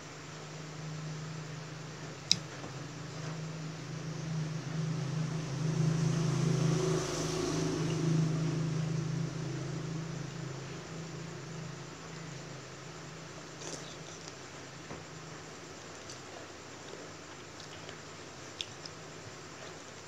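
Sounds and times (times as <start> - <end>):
low hum: 0.0 - 16.1
vehicle passing: 3.0 - 12.4.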